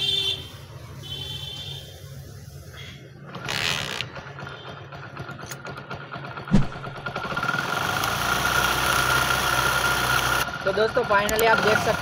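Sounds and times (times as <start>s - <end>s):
motorcycle engine running: 3.2s - 12.0s
sharp knock: 6.5s - 6.8s.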